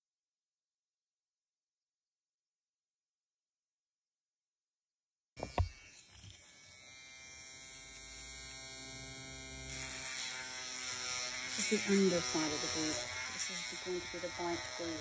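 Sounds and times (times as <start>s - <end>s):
rotary tool motor whine: 5.4s - 15.0s.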